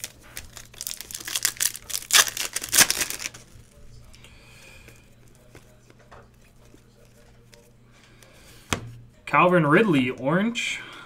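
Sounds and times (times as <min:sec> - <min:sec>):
foil wrapper tearing and crinkling: 0:00.0 - 0:03.5.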